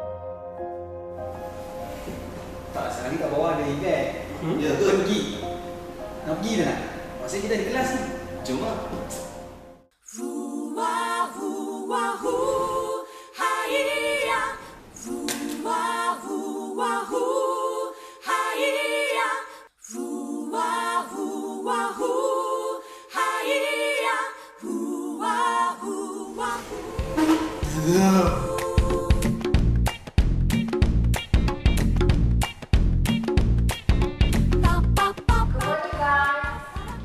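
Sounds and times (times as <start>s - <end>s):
voices singing a capella: 10.0s - 29.6s, 34.7s - 37.0s.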